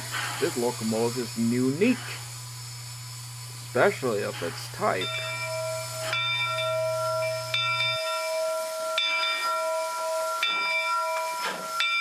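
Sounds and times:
steam hissing: 0:00.0 - 0:12.0
locomotive bell ringing: 0:03.9 - 0:12.0.

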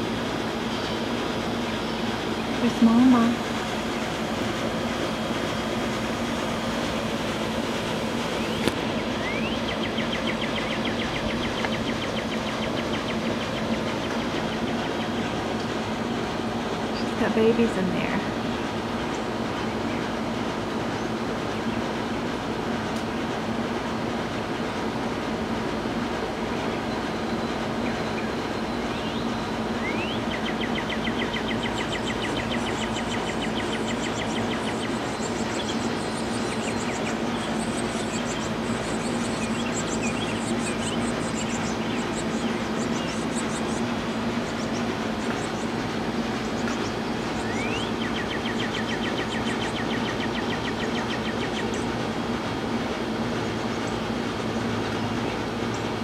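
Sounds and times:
mechanical rumble with low hum: 0:00.0 - 0:56.0
faint bird trills: 0:08.4 - 0:15.4, 0:26.8 - 0:51.9.

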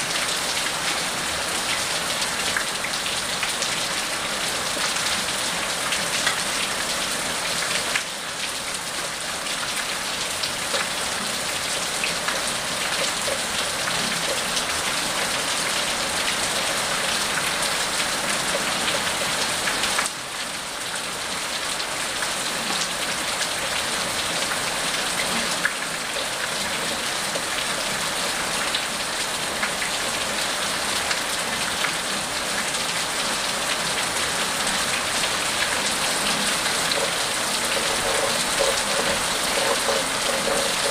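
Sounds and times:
rain on wet pavement: 0:00.0 - 0:40.9
drops splashing: 0:36.0 - 0:40.9.

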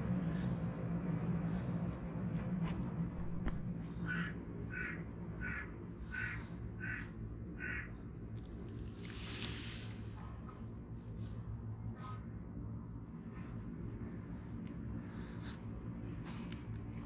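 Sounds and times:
crow cawing: 0:04.0 - 0:08.0.

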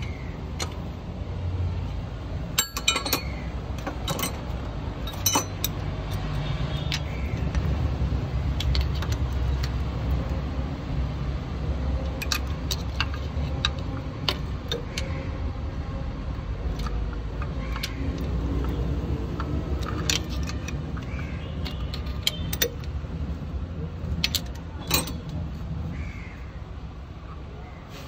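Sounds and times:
hand tools clinking on metal: 0:02.4 - 0:07.1, 0:24.2 - 0:25.4.

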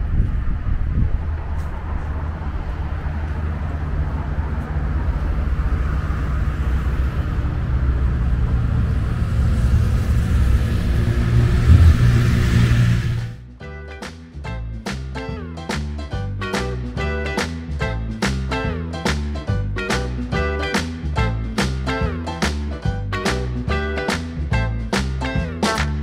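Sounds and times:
vehicle engine running: 0:01.1 - 0:13.4.

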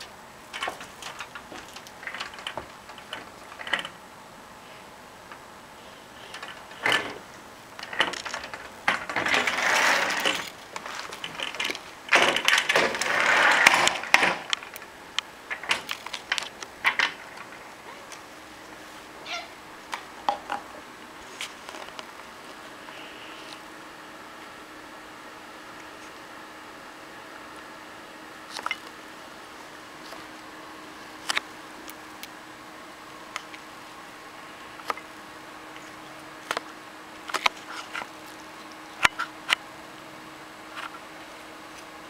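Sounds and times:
rustling: 0:04.6 - 0:20.2.

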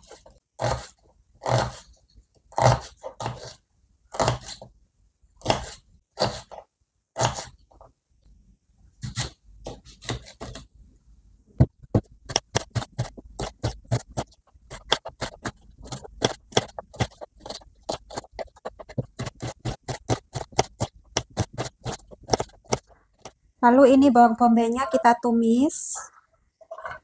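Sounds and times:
knife chopping onion on wooden board: 0:02.5 - 0:04.7, 0:05.4 - 0:06.6, 0:07.2 - 0:07.6, 0:11.9 - 0:23.3.

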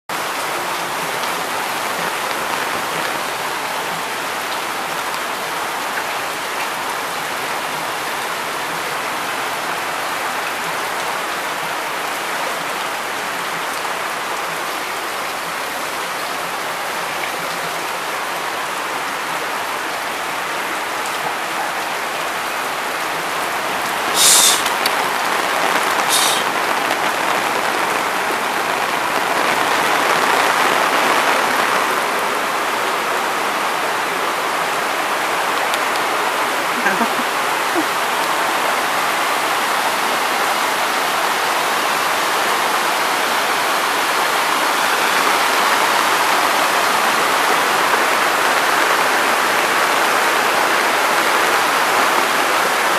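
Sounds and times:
heavy rain on concrete and puddles: 0:00.0 - 0:52.9
short hisses: 0:24.2 - 0:24.8, 0:26.1 - 0:26.5.

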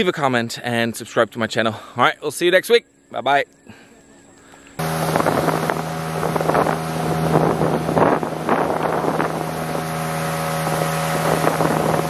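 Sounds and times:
motorboat engine running: 0:04.7 - 0:12.0
water rushing past hull: 0:04.8 - 0:12.0
wind buffeting microphone: 0:04.8 - 0:12.0.

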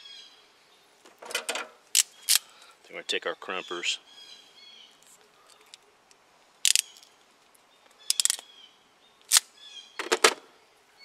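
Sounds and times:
wire crimper clicking and rattling: 0:06.7 - 0:07.0, 0:08.1 - 0:08.4.

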